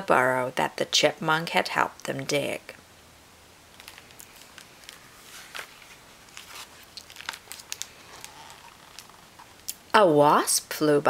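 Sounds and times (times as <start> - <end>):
book pages turning and rustling: 3.7 - 9.7.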